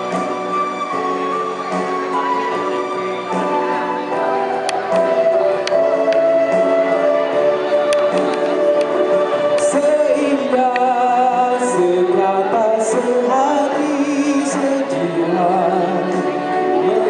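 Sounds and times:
recorded backing music: 0.0s - 17.0s
man singing over loudspeaker: 8.4s - 17.0s.

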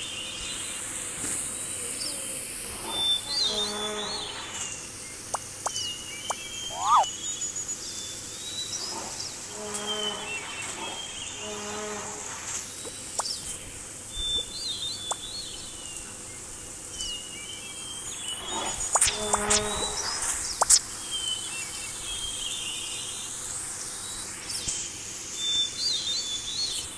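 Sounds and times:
insects buzzing: 1.3s - 16.9s, 17.6s - 25.9s
birds chirping: 5.0s - 7.1s
short pitched animal calls: 6.7s - 7.1s.

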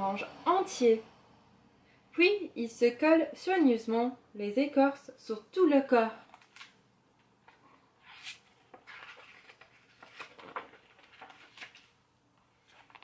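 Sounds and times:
paper rustling: 6.3s - 6.8s, 7.4s - 13.0s.

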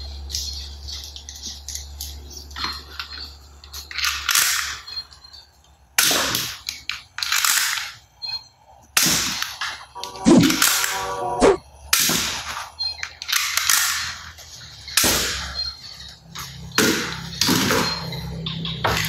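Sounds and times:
toy gun shots hissing: 14.9s - 15.6s.

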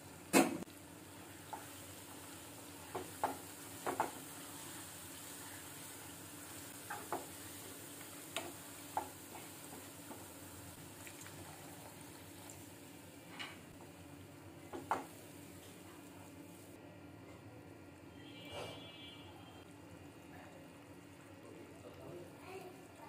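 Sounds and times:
food sizzling in a pan: 0.0s - 16.8s, 17.6s - 23.0s
spatula knocking against pan: 2.9s - 4.2s, 6.8s - 7.3s.

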